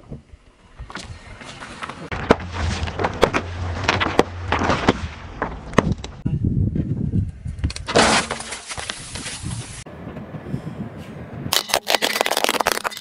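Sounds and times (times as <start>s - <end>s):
car tyre crushing objects: 2.1s - 6.2s, 7.8s - 9.5s, 11.5s - 13.0s.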